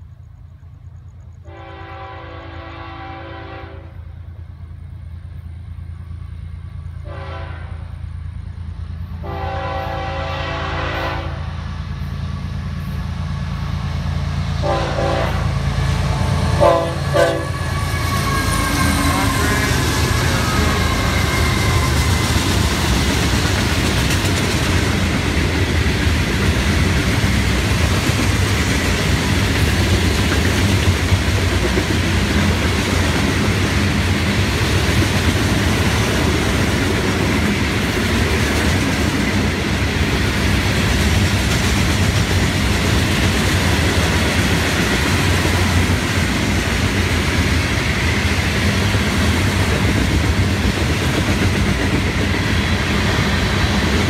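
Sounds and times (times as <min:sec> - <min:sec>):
locomotive engine rumble: 0:00.0 - 0:54.0
locomotive air horn: 0:01.4 - 0:04.1, 0:07.0 - 0:08.0, 0:09.2 - 0:11.5, 0:14.6 - 0:15.6, 0:16.6 - 0:22.6
train wheels clattering on rails: 0:08.2 - 0:54.0.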